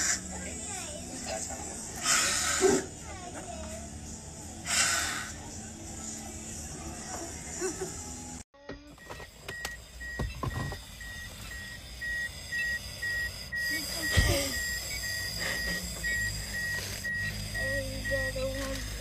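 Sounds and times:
breathalyzer beeping: 9.0 - 19.0.

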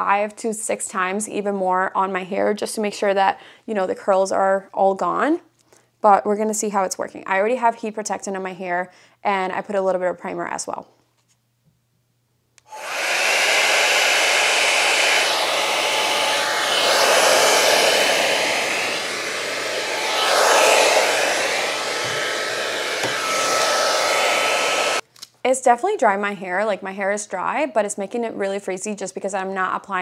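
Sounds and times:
hair dryer brush blowing: 12.7 - 25.0.

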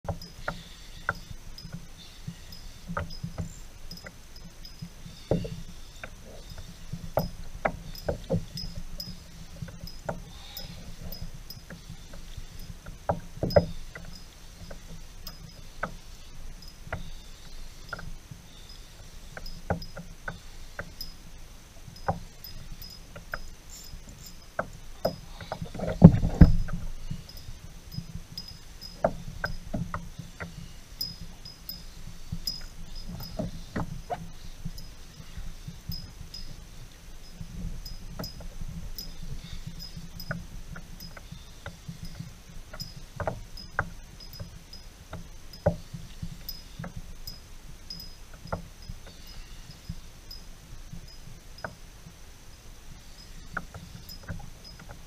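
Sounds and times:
low rumble of wind: 0.0 - 55.0
knocks and clicks from boat: 11.0 - 16.0, 24.1 - 27.2, 28.9 - 30.6, 37.2 - 44.5.

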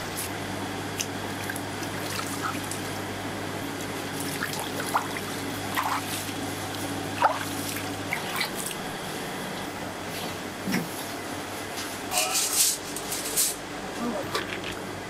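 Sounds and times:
steady low hum: 0.0 - 15.0
water splashing in steel basin: 4.1 - 8.8.

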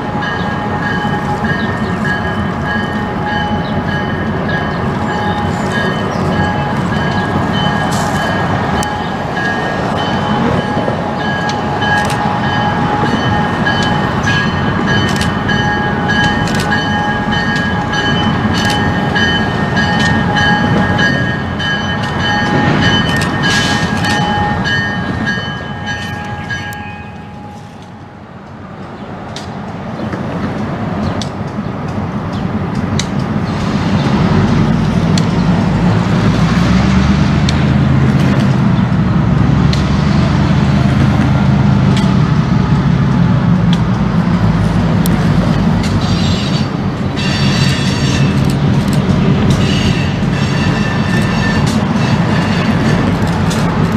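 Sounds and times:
diesel locomotives rumbling: 0.0 - 53.9.

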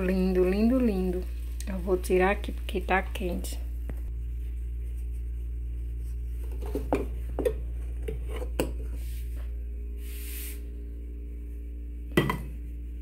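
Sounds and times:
steady low hum: 0.0 - 13.0
pan knocking on stone countertop: 12.1 - 12.6.

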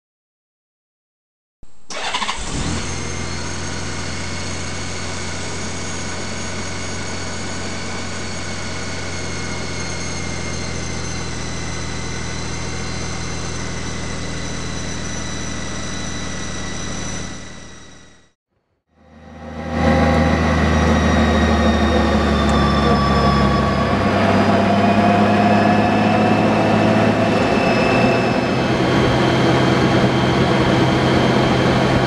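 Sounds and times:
high whining tones: 1.9 - 18.4, 19.0 - 32.0
low engine hum: 18.9 - 32.0.

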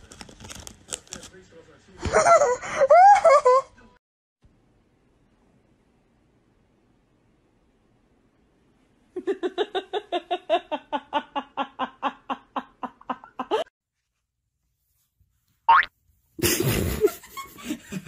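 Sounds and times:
person laughing: 2.0 - 3.8, 9.2 - 13.7, 16.4 - 18.0.

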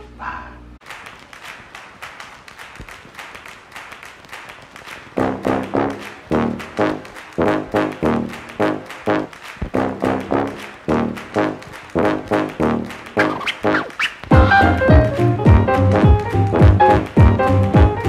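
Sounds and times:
loud repeating chords: 5.2 - 18.0
soft steady beat: 14.3 - 18.0.

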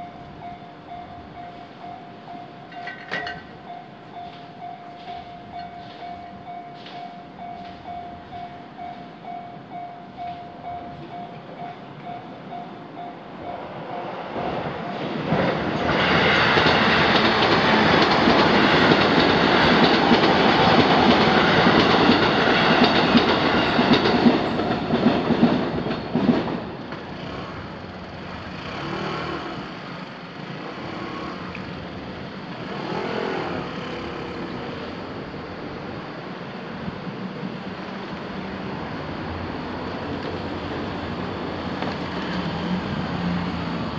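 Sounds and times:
level crossing alarm ringing: 0.0 - 15.2
train wheels clattering on rails: 2.2 - 9.1, 13.1 - 43.9.

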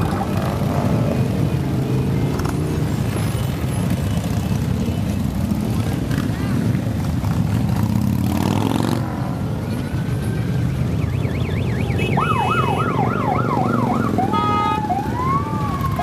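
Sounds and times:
motorcycles rumbling past: 0.0 - 10.3
siren wailing: 11.0 - 16.0.

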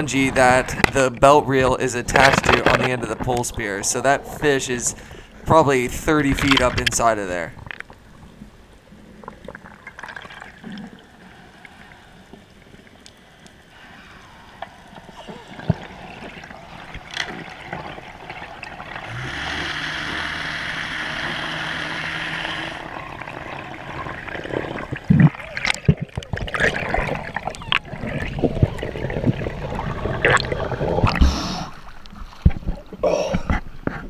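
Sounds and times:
steady hiss with low hum: 0.0 - 34.0
underwater water movement: 0.0 - 34.0
splashing: 9.2 - 33.0
faint clicks: 11.8 - 17.9.

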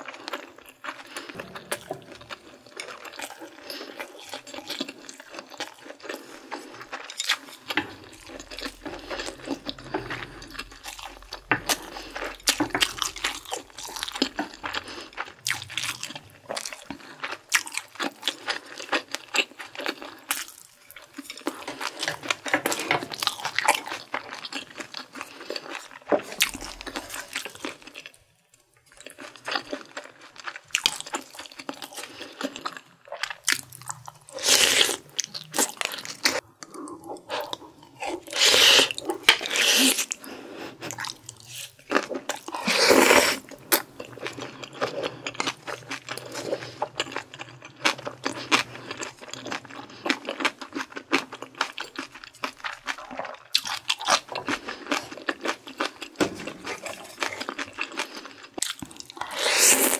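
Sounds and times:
wet chewing: 0.0 - 28.1, 28.9 - 59.9
slurping broth: 36.3 - 41.5, 42.6 - 43.7, 59.2 - 59.9.

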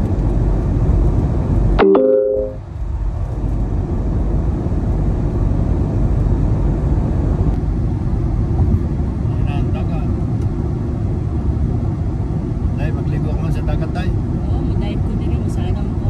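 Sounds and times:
road and tyre noise in car: 0.0 - 16.0
chime-like ringing tone: 1.8 - 2.6.

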